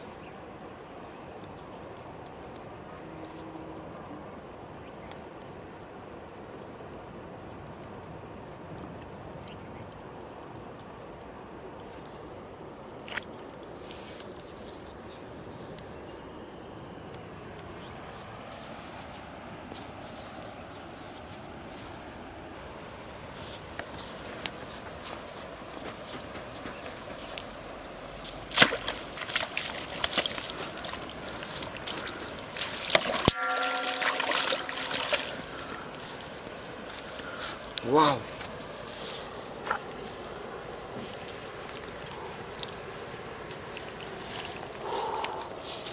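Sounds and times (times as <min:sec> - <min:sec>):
steady background noise: 0:00.0 - 0:45.9
fish splashing in water: 0:28.5 - 0:37.4
steady pitched hum: 0:29.9 - 0:43.3.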